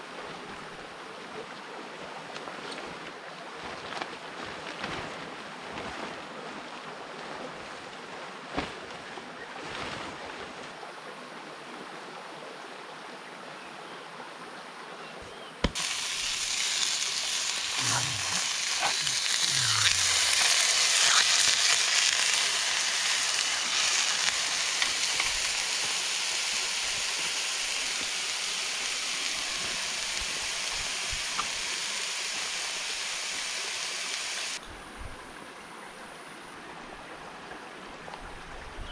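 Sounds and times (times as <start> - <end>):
patties sizzling in a frying pan: 15.7 - 34.6.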